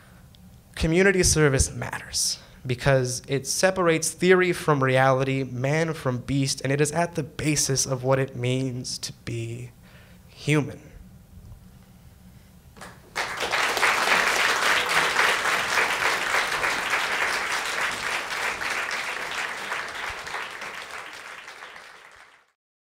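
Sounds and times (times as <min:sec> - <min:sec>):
audience applauding: 0:12.8 - 0:22.6.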